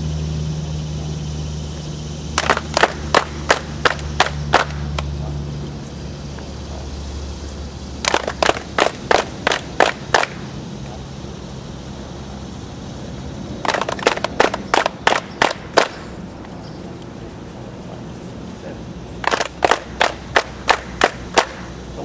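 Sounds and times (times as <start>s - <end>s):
group clapping in unison: 2.3s - 5.1s, 8.0s - 10.4s, 13.6s - 16.0s, 19.2s - 21.7s.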